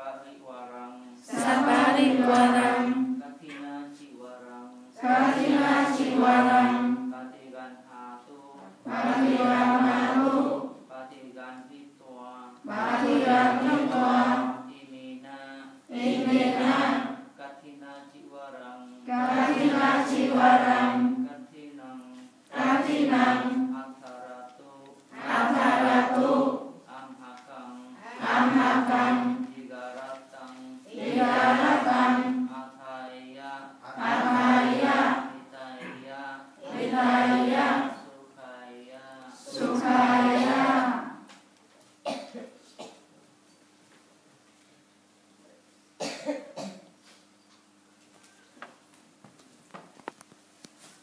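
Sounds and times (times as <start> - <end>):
group chanting in unison: 1.2 - 3.7, 4.4 - 7.8, 8.8 - 11.4, 12.1 - 17.4, 19.0 - 21.7, 22.5 - 24.3, 25.1 - 27.2, 27.9 - 41.3
person coughing: 42.0 - 43.1, 46.0 - 46.9.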